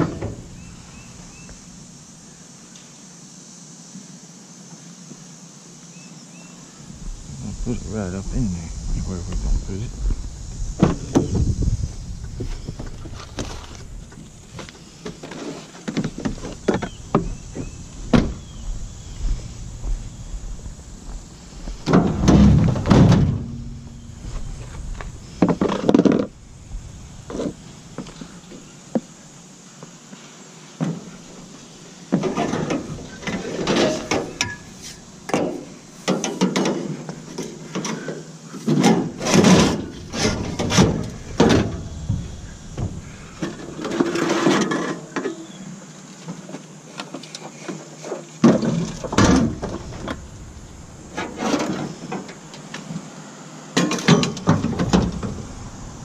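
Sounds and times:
scrap metal clanking and scraping: 32.2 - 45.4, 51.0 - 52.4.

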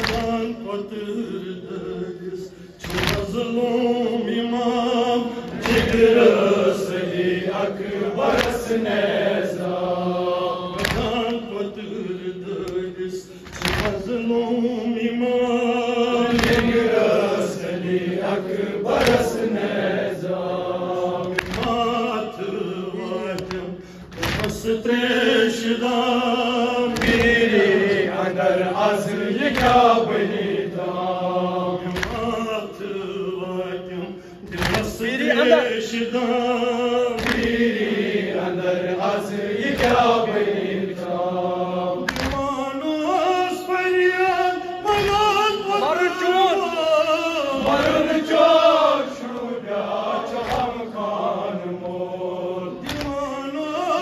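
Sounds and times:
men chanting a lament: 0.0 - 54.0.

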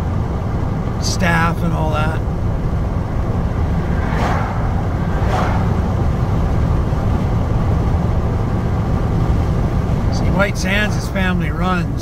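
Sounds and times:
vehicle rumble at highway speed: 0.0 - 12.0.

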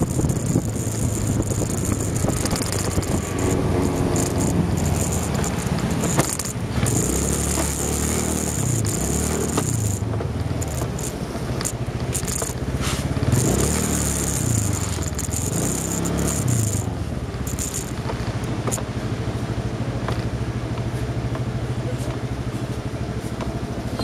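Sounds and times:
camera mount rattles: 0.0 - 18.9
motorcycle engine revving: 0.0 - 20.6
wind and road noise: 0.0 - 24.0.

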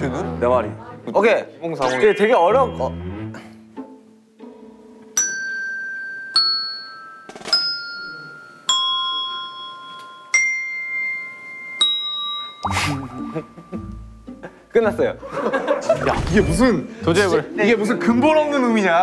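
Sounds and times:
desk bells ringing a tune: 5.2 - 14.2.

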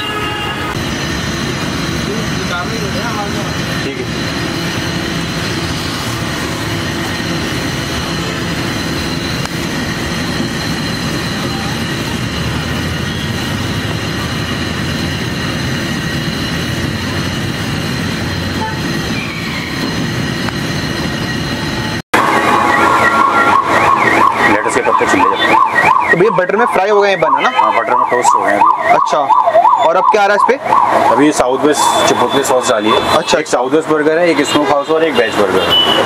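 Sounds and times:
mechanical hum and rumble: 0.6 - 24.0.

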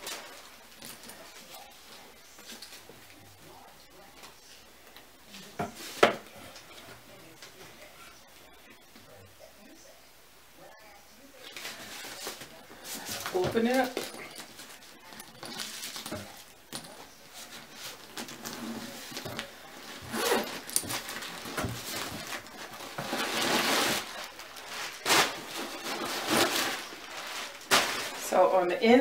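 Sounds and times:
wrapping paper rustling and crinkling: 0.0 - 2.9, 11.4 - 28.7
handling knocks and clinks: 18.1 - 23.6.

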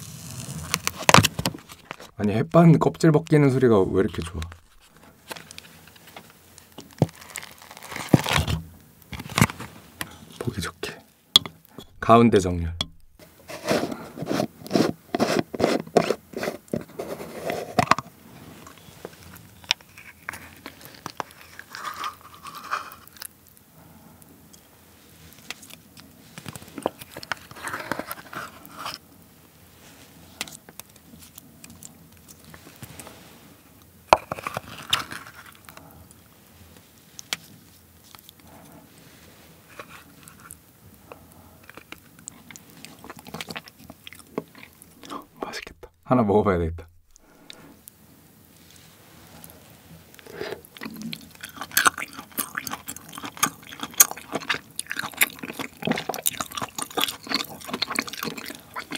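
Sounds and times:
wooden spoon scraping jar: 12.8 - 23.1, 50.2 - 50.7.

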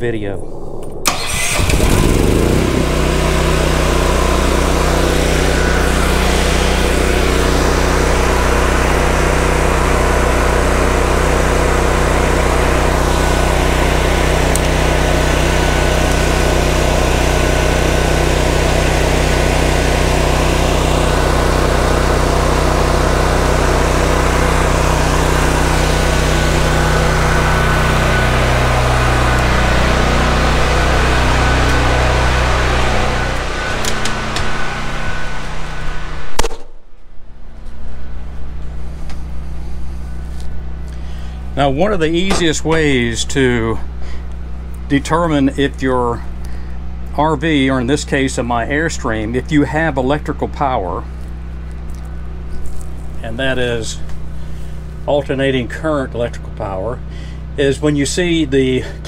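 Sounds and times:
generator engine running: 0.1 - 36.5, 37.2 - 59.0.

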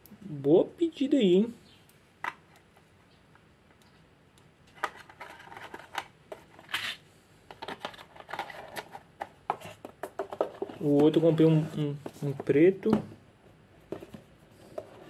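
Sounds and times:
packaging clicks and rustling: 4.7 - 11.2.

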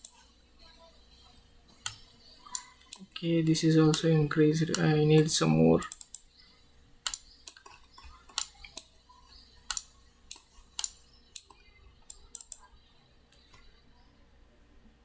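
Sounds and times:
computer mouse clicks: 0.0 - 0.2, 1.8 - 3.2, 3.8 - 4.1, 4.7 - 6.3, 7.0 - 8.9, 9.6 - 12.7.

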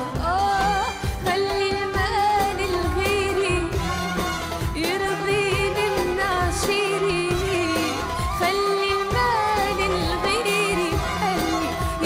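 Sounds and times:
live band with percussion: 0.0 - 12.0
woman singing: 0.0 - 12.0.

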